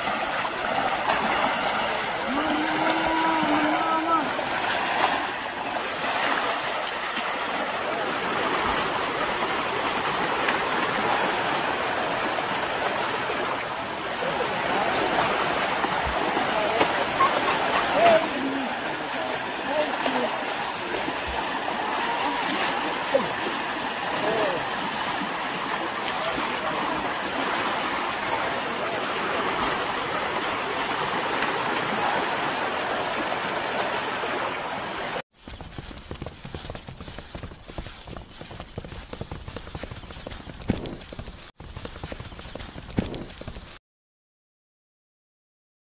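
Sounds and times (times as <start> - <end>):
river water rushing: 0.0 - 43.8
hooves on dry ground: 35.3 - 43.8.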